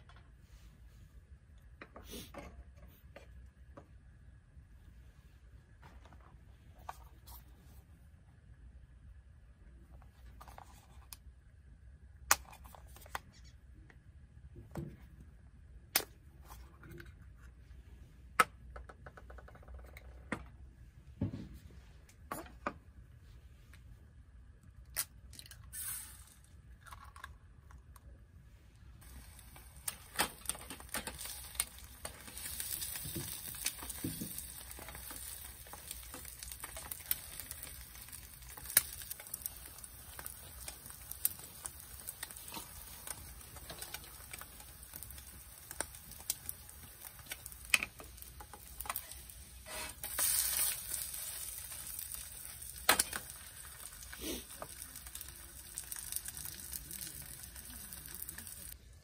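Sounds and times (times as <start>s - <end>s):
scattered crackles: 29.0s - 58.8s.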